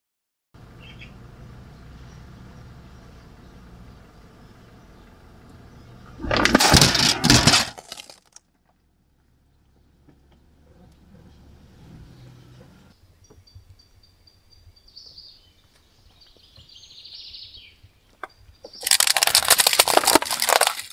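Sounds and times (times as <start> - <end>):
car engine idling: 0.6 - 6.6
crunching under car wheel: 6.1 - 8.7, 18.7 - 20.9.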